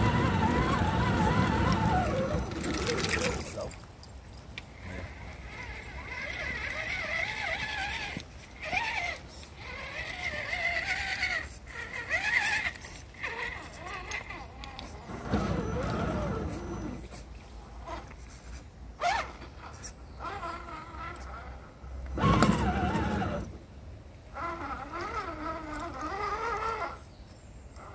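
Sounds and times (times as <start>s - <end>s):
dog whimpering: 4.8s - 17.2s.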